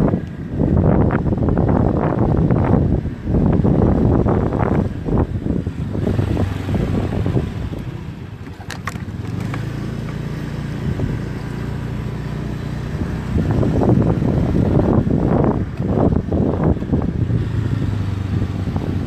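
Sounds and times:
motorcycle engine running: 0:00.0 - 0:19.0
wind buffeting microphone: 0:00.0 - 0:19.0.

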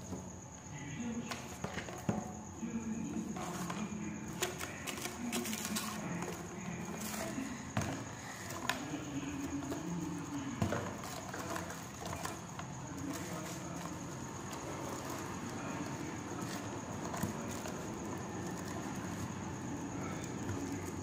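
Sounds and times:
foil crinkling: 0:04.4 - 0:06.3.

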